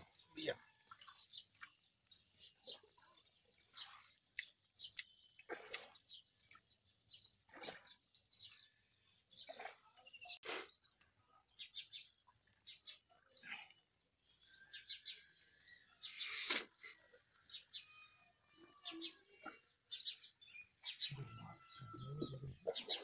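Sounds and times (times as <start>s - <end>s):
water splashes around a boat: 0.0s - 10.4s
bird chirps: 0.0s - 13.4s, 14.4s - 23.0s.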